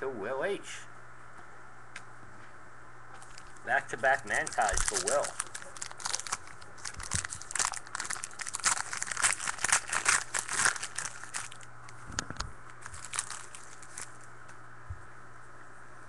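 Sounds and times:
wrapper crinkling and tearing: 3.2s - 14.3s.

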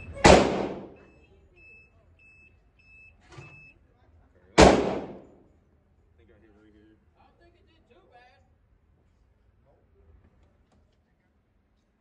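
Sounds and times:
echoing gunshots: 0.2s - 1.0s, 4.6s - 5.4s.

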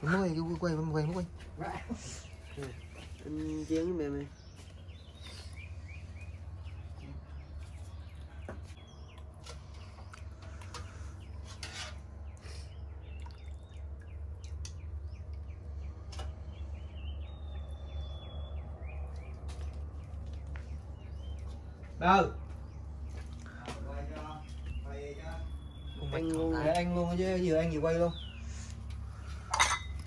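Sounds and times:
birds chirping: 0.0s - 30.0s
metal ladle clinking pot: 29.5s - 30.0s.

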